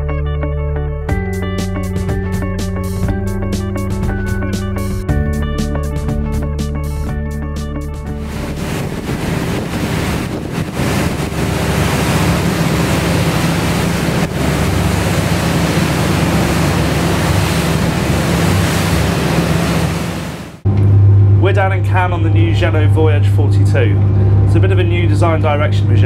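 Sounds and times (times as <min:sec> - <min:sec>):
low engine drone: 0:01.6 - 0:26.0
wind buffeting microphone: 0:08.2 - 0:20.4
rushing water and spray: 0:08.2 - 0:20.6.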